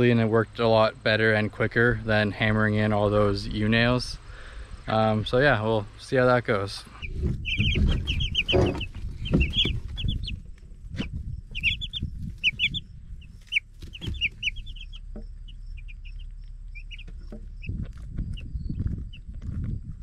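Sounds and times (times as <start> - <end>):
chicks peeping: 0.2 - 20.0
low rumble: 6.8 - 20.0
scattered knocks: 7.2 - 10.2.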